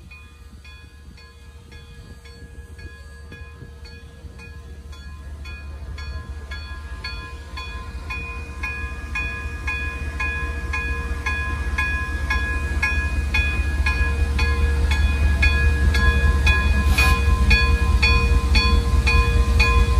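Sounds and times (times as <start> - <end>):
locomotive bell ringing: 0.0 - 19.9.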